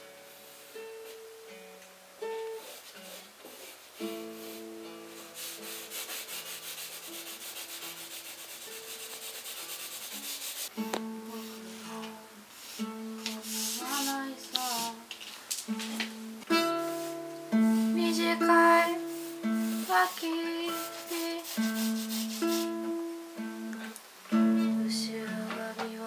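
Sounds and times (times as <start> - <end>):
charcoal scraping on paper: 2.6 - 10.7, 12.6 - 14.9, 16.8 - 17.2, 19.2 - 22.7.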